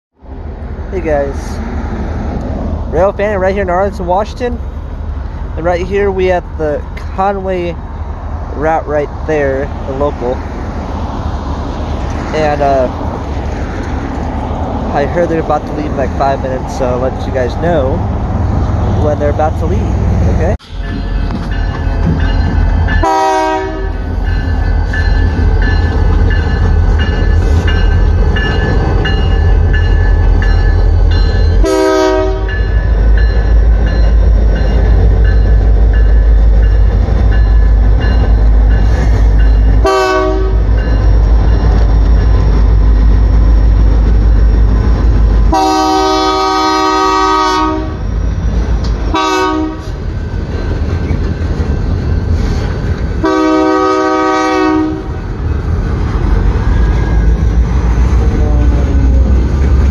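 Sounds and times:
locomotive engine rumbling: 0.2s - 59.9s
train cars rolling past: 0.2s - 59.9s
train air horn blasts: 23.0s - 24.0s, 31.6s - 32.6s, 39.8s - 40.6s, 45.5s - 48.0s, 49.1s - 49.9s, 53.2s - 55.1s.

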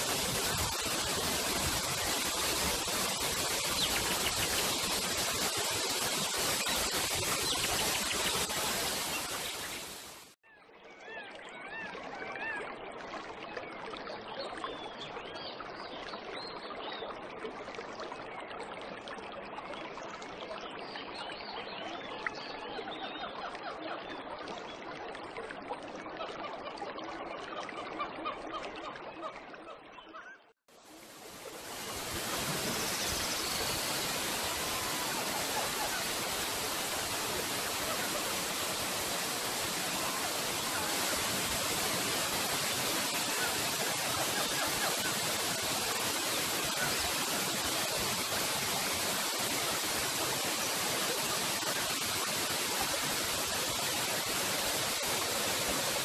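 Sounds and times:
waterfall rushing: 0.0s - 10.4s, 31.2s - 56.0s.

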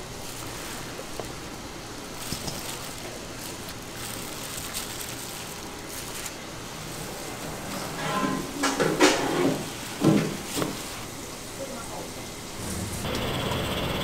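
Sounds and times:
wet squishing of salad mixing: 0.0s - 7.1s.

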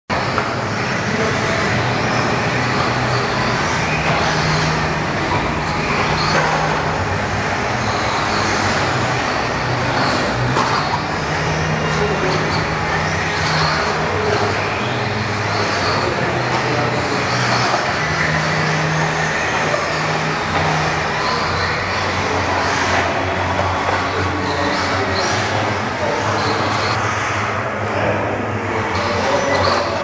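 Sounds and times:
high motor whines: 0.1s - 30.0s
small motors and tyres on dirt: 0.2s - 27.6s.

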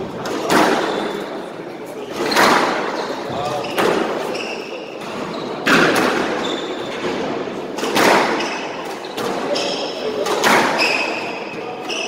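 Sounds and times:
squash ball hitting racket and wall: 0.0s - 1.4s, 2.0s - 12.0s
shoes squeaking on wooden floor: 2.1s - 7.1s, 8.4s - 10.0s, 10.8s - 12.0s.

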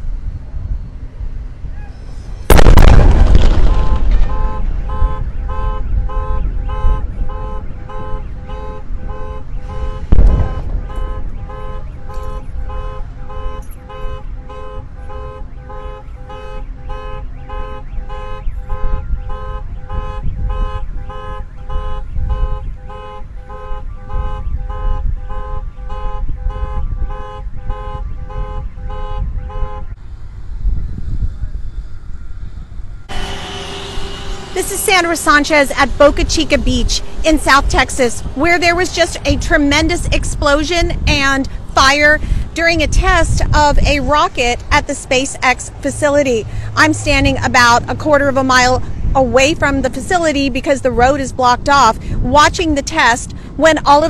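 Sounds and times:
sharp boom: 2.4s - 5.9s, 10.1s - 12.6s, 33.1s - 37.8s
car alarm pulsing: 2.4s - 30.0s
deep explosion boom: 2.5s - 6.0s, 10.1s - 12.1s.

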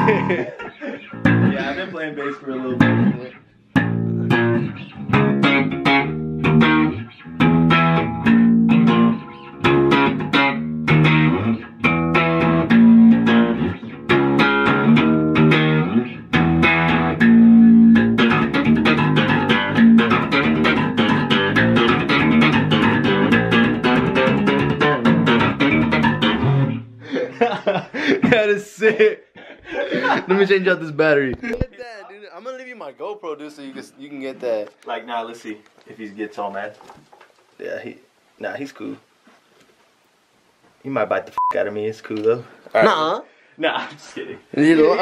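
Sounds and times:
electric bass guitar riff: 0.0s - 0.5s, 1.1s - 1.8s, 2.8s - 27.1s.

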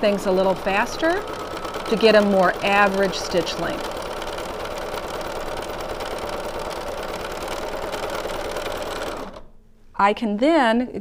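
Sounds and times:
sewing machine running: 0.0s - 9.5s.

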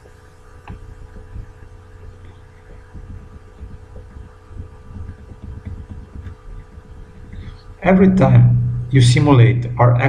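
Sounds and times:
low hum and rumble: 0.0s - 10.0s.

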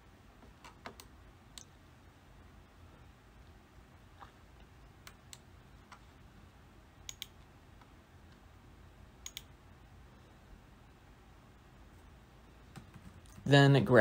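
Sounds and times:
faint room hiss: 0.0s - 14.0s
computer mouse clicking: 0.4s - 1.7s, 7.0s - 8.4s, 9.2s - 9.5s, 12.7s - 13.5s.

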